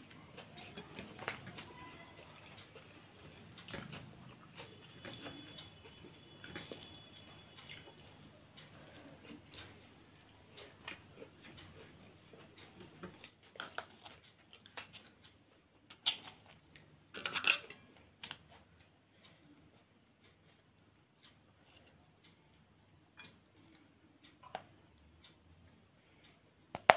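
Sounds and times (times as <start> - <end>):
person chewing food: 0.0 - 22.0, 23.1 - 25.4
dishes and spoon clattering: 17.2 - 17.9.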